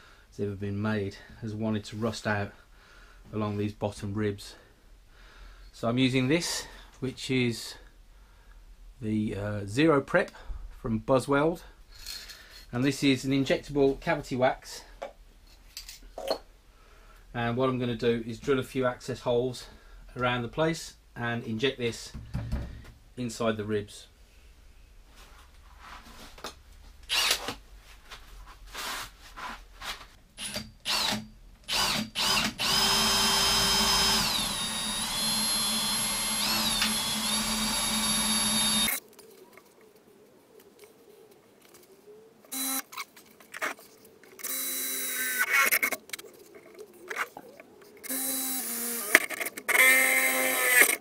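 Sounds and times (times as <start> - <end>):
power drill drilling metal: 27.1 - 27.6, 30.4 - 39.0, 42.5 - 42.8, 48.1 - 51.0.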